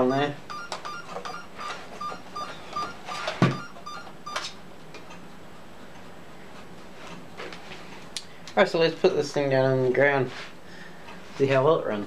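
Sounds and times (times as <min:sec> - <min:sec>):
short electronic beeps: 0:00.5 - 0:04.5.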